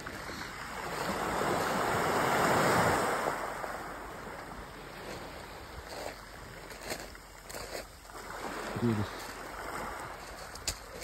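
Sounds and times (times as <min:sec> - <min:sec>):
wave washing up pebble beach: 0:00.0 - 0:11.0.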